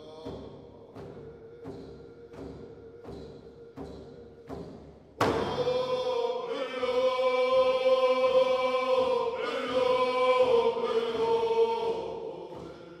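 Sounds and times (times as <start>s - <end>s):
voices singing long held notes: 5.2s - 13.0s.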